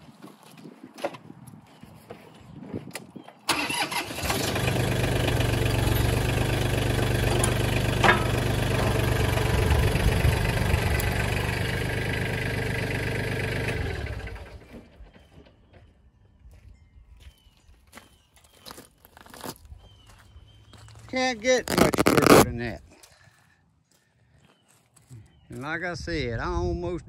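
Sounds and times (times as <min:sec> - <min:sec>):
tractor diesel engine running: 0:03.5 - 0:15.5.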